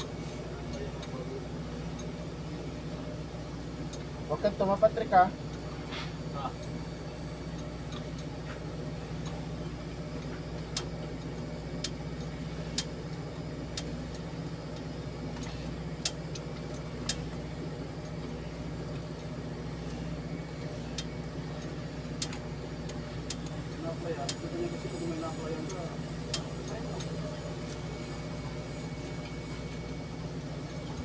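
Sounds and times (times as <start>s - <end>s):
steady engine hum: 0.0s - 31.0s.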